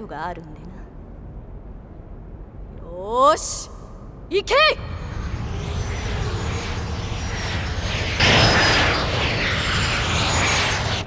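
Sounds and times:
jet-like thruster rush: 0:04.6 - 0:11.0.

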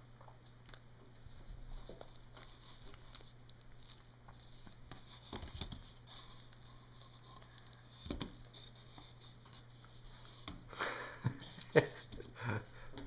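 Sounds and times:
banana peel rustling: 0:01.3 - 0:10.6.

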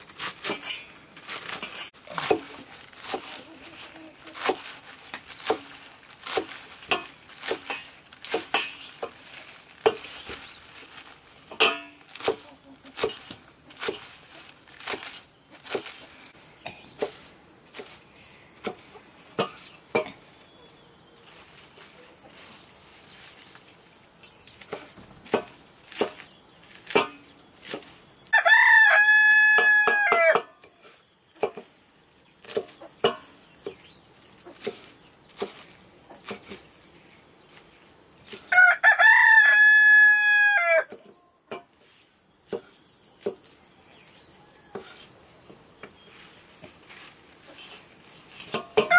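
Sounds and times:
blade cutting leafy greens: 0:00.0 - 0:19.8, 0:21.3 - 0:28.2, 0:32.4 - 0:33.8, 0:34.4 - 0:36.8, 0:37.4 - 0:38.5, 0:41.8 - 0:48.9
rooster crowing: 0:28.3 - 0:30.5, 0:38.5 - 0:40.9.

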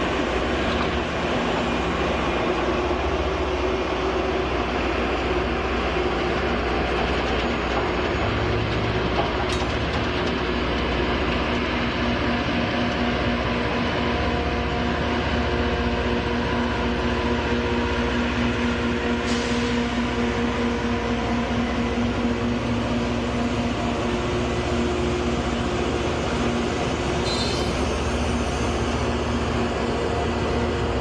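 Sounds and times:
diesel engines droning: 0:00.0 - 0:31.0
train wheels rumbling on rail: 0:00.0 - 0:31.0
high squeal: 0:27.2 - 0:29.3.

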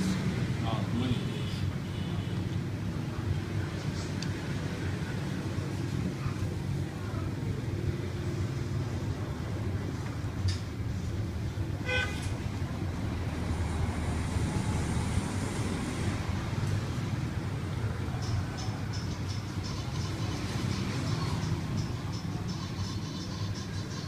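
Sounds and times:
road traffic rumble: 0:00.0 - 0:24.0.

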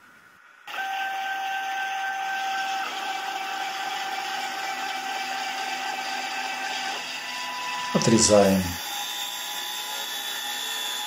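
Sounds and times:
lathe spindle whine: 0:00.5 - 0:11.0.

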